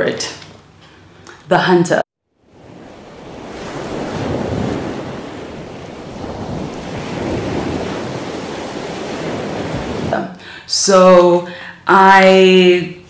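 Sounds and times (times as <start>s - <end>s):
ocean surf rushing: 2.4s - 11.8s.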